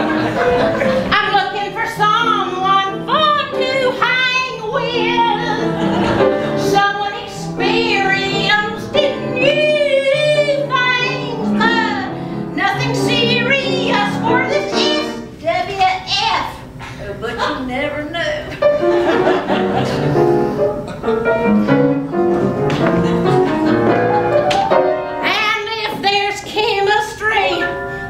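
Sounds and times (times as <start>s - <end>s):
grand piano accompaniment: 0.0s - 15.4s, 18.5s - 28.0s
woman singing: 1.1s - 5.8s, 6.5s - 18.5s, 25.2s - 27.8s.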